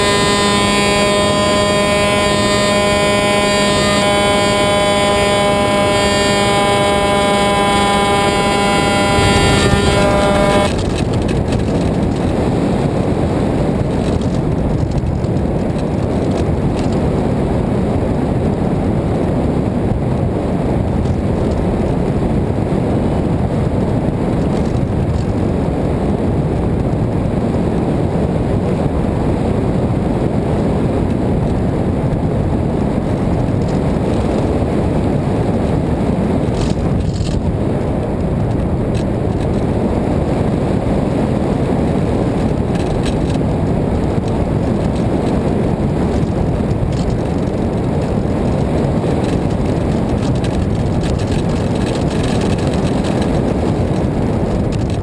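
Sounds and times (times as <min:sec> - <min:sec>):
electric motor and propeller whine: 0:00.0 - 0:24.8
wind rushing over camera: 0:00.0 - 0:55.0.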